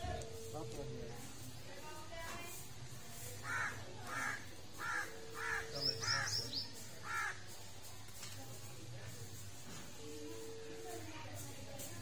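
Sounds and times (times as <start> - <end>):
crow cawing: 3.4 - 6.4, 7.0 - 7.5
small bird chirping: 4.9 - 7.0.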